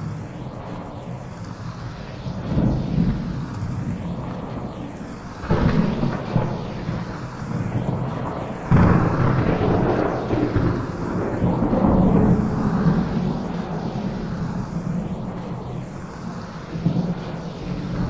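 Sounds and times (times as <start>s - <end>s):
steady rain: 0.0s - 18.0s
thunder rumbling: 2.2s - 18.0s.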